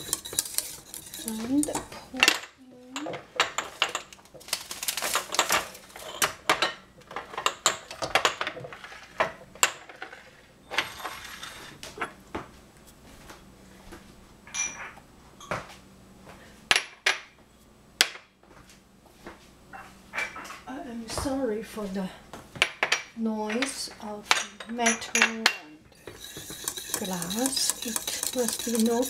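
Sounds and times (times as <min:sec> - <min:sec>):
dishes and pans clinking: 0:00.0 - 0:04.2, 0:04.9 - 0:12.2, 0:14.5 - 0:15.7, 0:19.7 - 0:20.6, 0:22.6 - 0:29.0.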